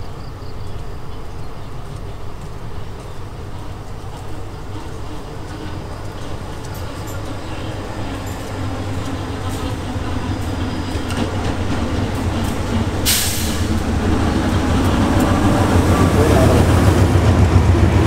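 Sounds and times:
diesel locomotive engine drone: 0.0 - 18.0
short hiss: 13.0 - 13.7.

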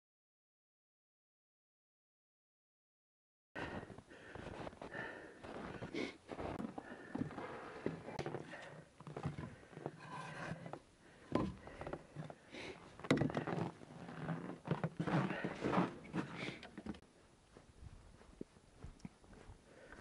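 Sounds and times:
footsteps crunching on snow: 4.3 - 8.4, 17.2 - 20.0.

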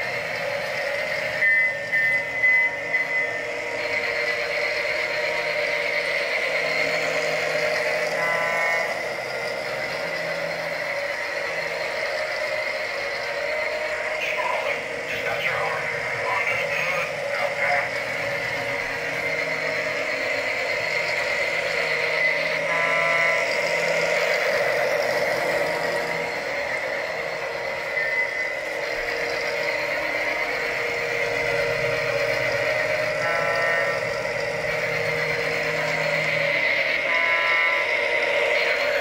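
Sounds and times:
toy train motor whirring: 0.0 - 39.0.

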